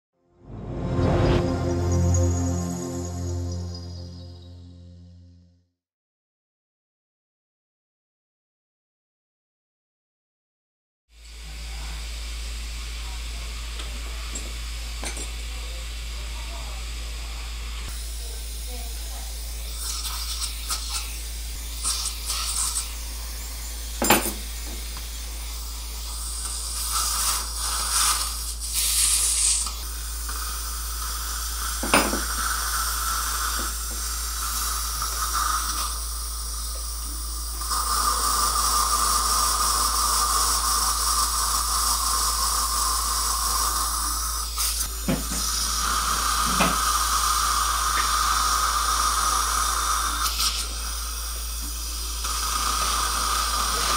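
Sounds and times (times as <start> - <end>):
dental drill whining: 11.2 - 53.9
irrigation water hissing: 17.9 - 53.9
steady hiss: 17.9 - 53.9.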